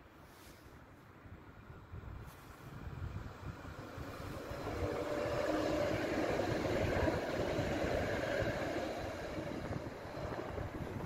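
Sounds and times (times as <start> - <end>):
tram wheels on rails: 1.8 - 11.0.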